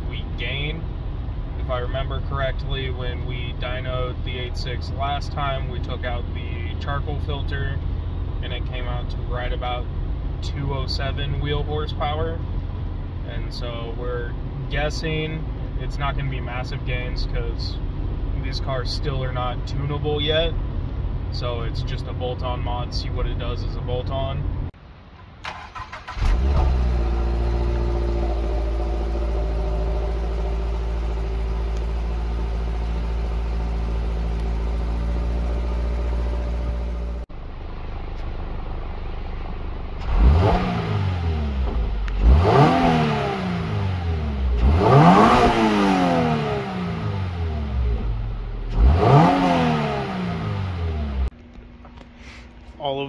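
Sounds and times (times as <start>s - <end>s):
car engine revving: 25.5s - 37.3s, 39.8s - 51.3s.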